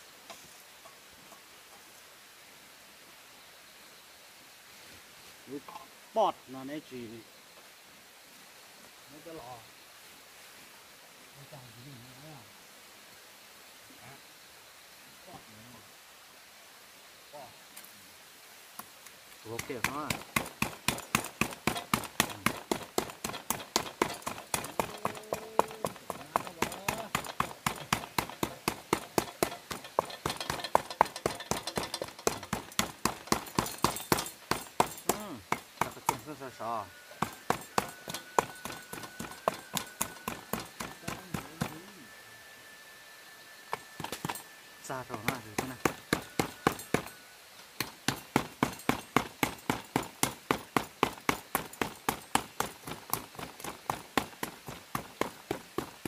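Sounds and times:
rapid sharp knocking: 19.5 - 36.4, 37.1 - 41.9, 43.7 - 44.4, 45.1 - 47.2, 47.8 - 56.0.

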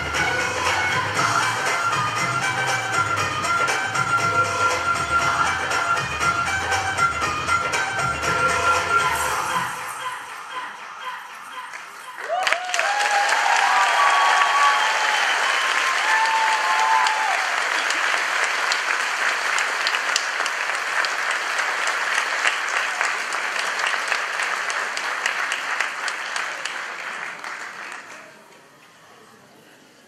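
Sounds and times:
audience clapping: 10.3 - 28.8.

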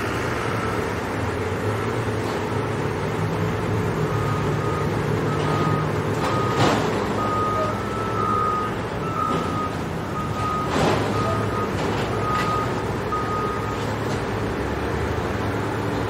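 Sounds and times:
heavy vehicle engine running: 0.0 - 16.0
reversing alarm beeping: 4.0 - 13.9.

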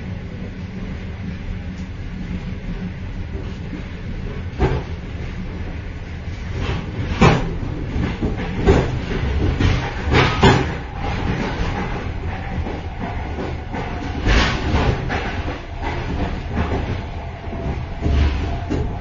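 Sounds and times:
train running gear rumble: 0.0 - 19.0.

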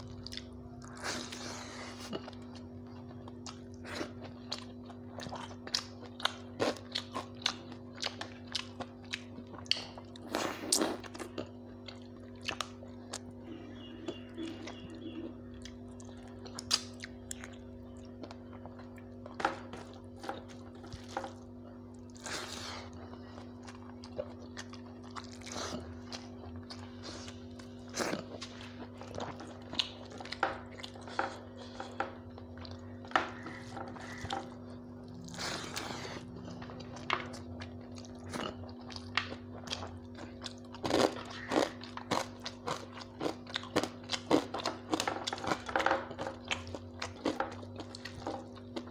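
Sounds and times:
person chewing and mouth sounds: 0.0 - 48.9
steady low hum: 0.0 - 48.9.

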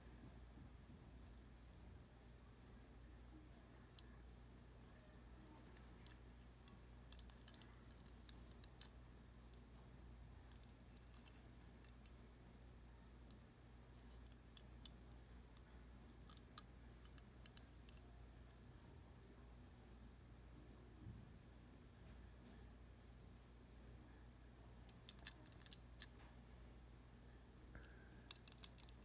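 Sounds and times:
low steady hum: 0.0 - 29.0
fingers clicking on toy model: 5.4 - 8.9, 24.9 - 26.1, 28.3 - 29.0.

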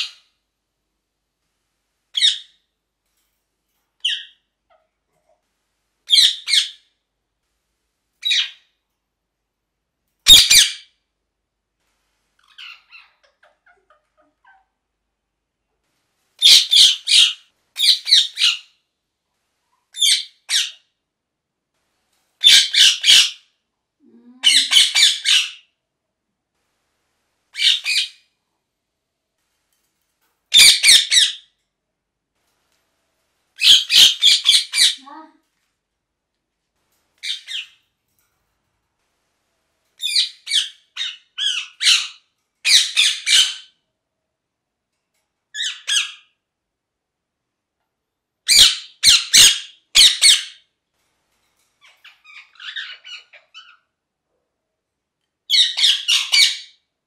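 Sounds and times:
parakeet harsh high-pitched calls: 0.0 - 0.3, 2.1 - 2.6, 4.0 - 4.9, 6.1 - 6.9, 8.2 - 8.6, 10.2 - 10.9, 12.4 - 14.7, 16.4 - 18.7, 20.0 - 20.9, 22.4 - 23.5, 24.4 - 25.7, 27.5 - 28.3, 30.5 - 31.5, 33.6 - 35.3, 37.2 - 37.8, 40.0 - 43.8, 45.6 - 46.4, 48.5 - 50.7, 51.8 - 53.9, 55.5 - 56.8.

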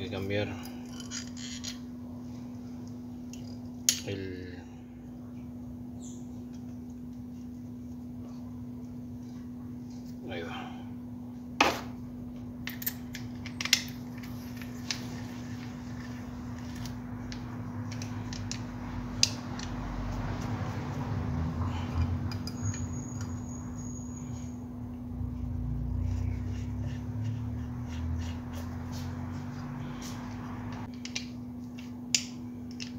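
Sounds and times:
steady low hum: 0.0 - 32.9.

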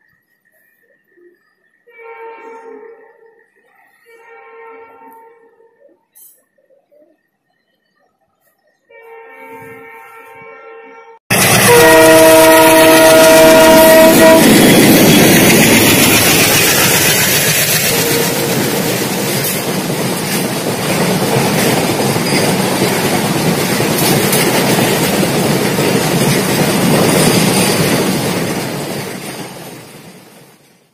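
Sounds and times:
diesel locomotive horn: 1.9 - 3.2, 4.0 - 6.0, 8.9 - 15.1, 17.3 - 19.2
train wheels clattering over rail joints: 11.3 - 30.9.

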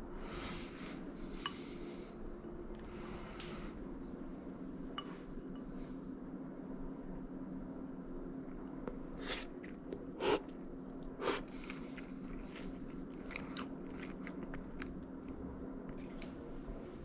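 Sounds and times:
chewing with small clicks: 9.6 - 16.3.

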